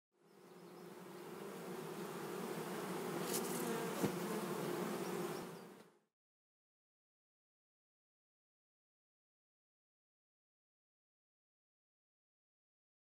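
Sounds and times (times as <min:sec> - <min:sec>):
bee buzzing: 0:00.3 - 0:06.1.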